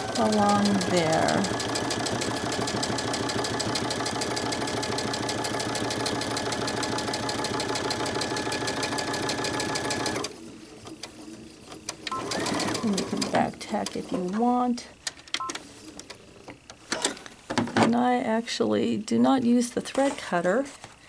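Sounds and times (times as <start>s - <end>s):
sewing machine stitching: 0.0s - 11.2s, 11.8s - 14.3s.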